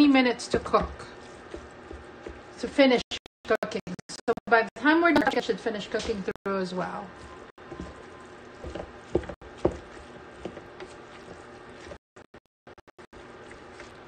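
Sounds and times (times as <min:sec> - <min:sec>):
spatula scraping and knocking pan: 0:00.3 - 0:03.0, 0:05.9 - 0:12.0.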